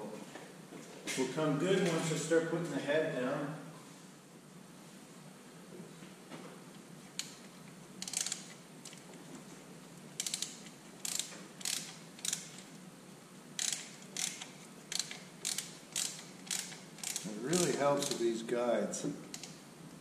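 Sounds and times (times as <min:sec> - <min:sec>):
chain hoist ratchet clicking: 0:07.2 - 0:09.1, 0:10.2 - 0:12.7, 0:13.6 - 0:18.3, 0:19.3 - 0:19.6.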